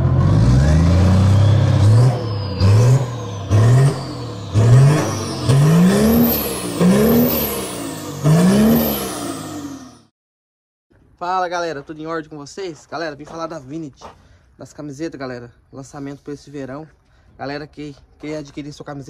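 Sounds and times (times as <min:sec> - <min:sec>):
engine revving hard: 0:00.0 - 0:10.1.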